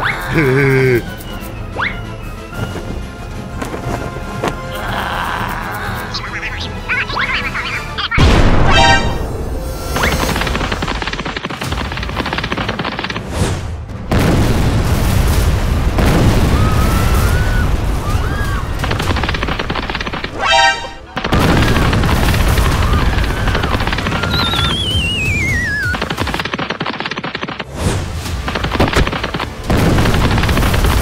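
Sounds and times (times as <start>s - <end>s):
cartoon action music: 4.6s - 13.4s, 20.2s - 26.9s
booming and crackling noise: 9.9s - 20.4s, 21.1s - 27.0s, 27.6s - 31.0s.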